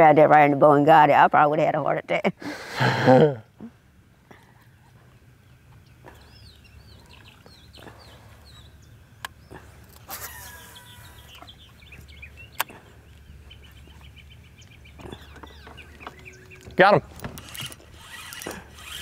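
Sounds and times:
steady low hum: 0.0 - 19.0
birds chirping and calling: 4.6 - 19.0.

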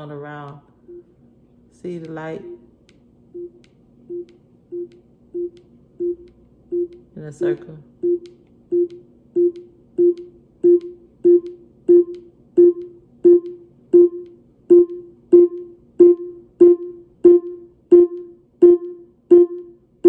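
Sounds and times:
smart speaker volume tone: 8.8 - 19.9.

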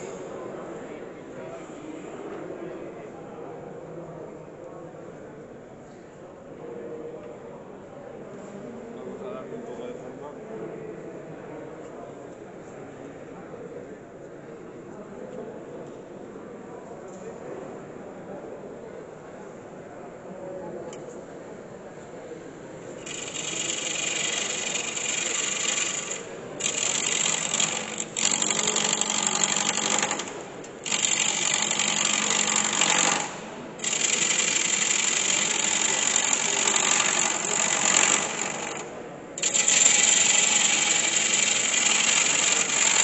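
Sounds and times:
gouge cutting wood on lathe: 23.0 - 43.0.

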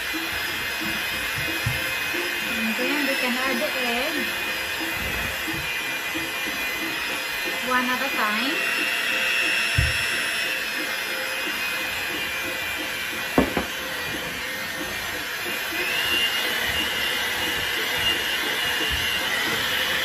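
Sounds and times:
electric hand mixer whirring: 0.0 - 20.0
knock: 9.8 - 10.0, 13.4 - 13.8.

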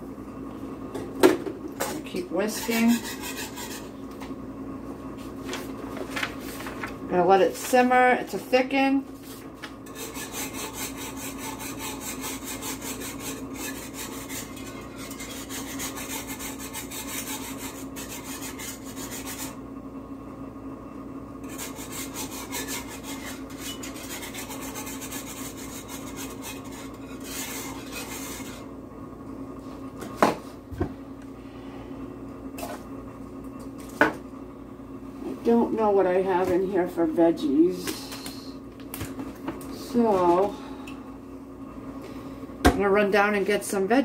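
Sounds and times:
steady low hum: 0.0 - 44.0
whisk scraping a skillet: 2.0 - 4.0, 9.8 - 19.6, 21.4 - 28.7.

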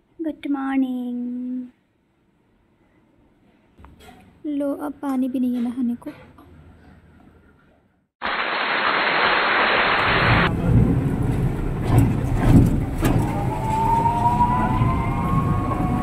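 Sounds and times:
rickshaw rumbling and rattling: 10.2 - 16.0.

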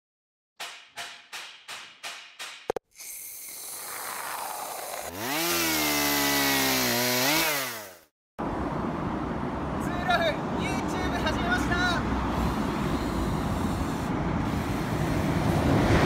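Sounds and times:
motor-like revving sound: 3.0 - 8.1.

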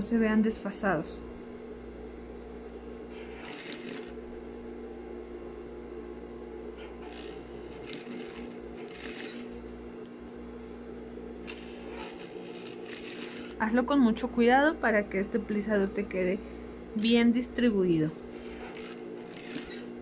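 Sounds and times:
sewing machine motor humming: 3.1 - 4.3, 6.8 - 10.2, 11.4 - 13.8, 18.3 - 20.0.

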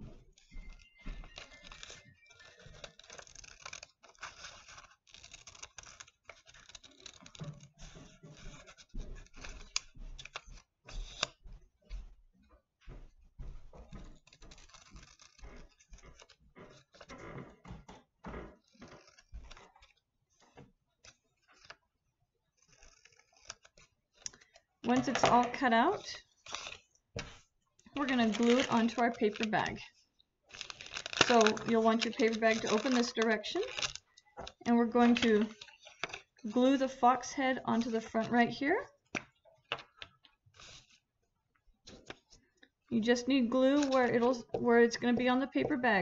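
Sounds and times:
paper rustling: 0.0 - 12.1, 12.9 - 41.1, 41.8 - 46.0
scissors snipping paper: 0.3 - 11.4, 14.0 - 17.1, 18.6 - 20.0, 22.5 - 41.1, 43.3 - 45.8.

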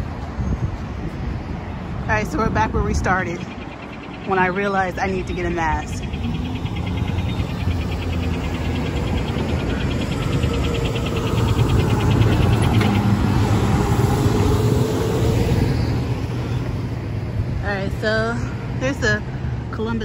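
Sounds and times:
heavy truck engine rumble: 4.9 - 19.7
fast high-pitched ticking: 5.5 - 14.4.

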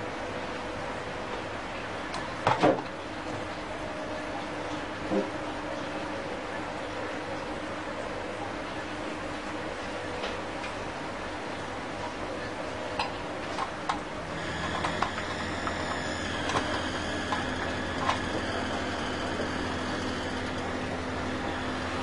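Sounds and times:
electric motor hum: 13.8 - 22.0.

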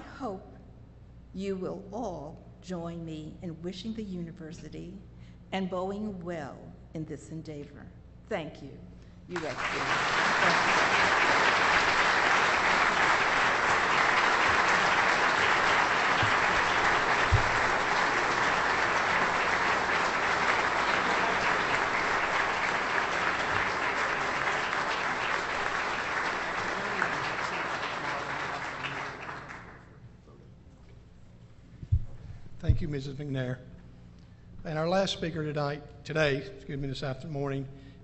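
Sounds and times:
audience applauding: 9.3 - 29.9.

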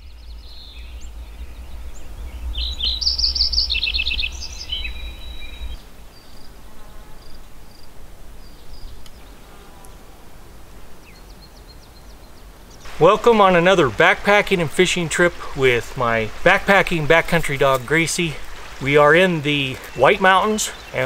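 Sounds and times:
songbirds singing: 0.0 - 21.0.

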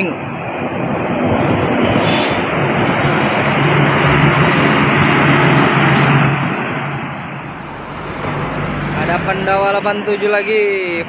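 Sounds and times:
coach driving past: 3.6 - 10.1.

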